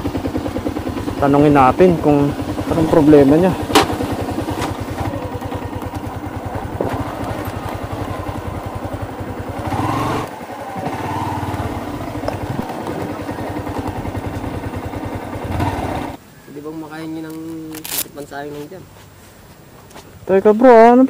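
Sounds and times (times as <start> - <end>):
motorcycle engine running low speed: 0.0 - 16.2.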